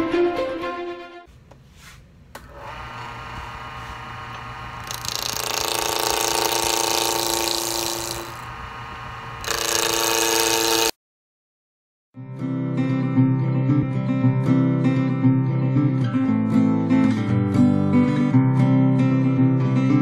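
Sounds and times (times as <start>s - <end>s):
turning tool cutting wood: 2.5s - 11.0s
wood lathe humming: 2.5s - 11.0s.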